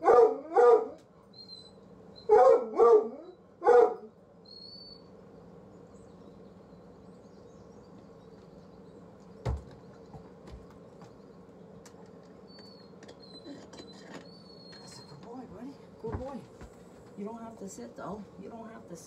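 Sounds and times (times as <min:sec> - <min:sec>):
faint high chirps: 0:04.4 - 0:05.2, 0:12.4 - 0:15.3.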